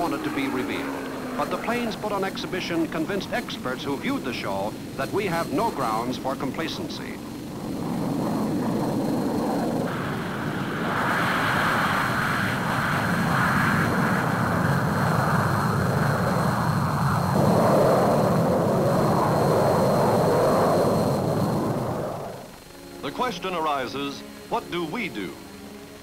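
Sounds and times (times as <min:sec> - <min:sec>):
jet aircraft flying overhead: 0:00.0 - 0:26.0.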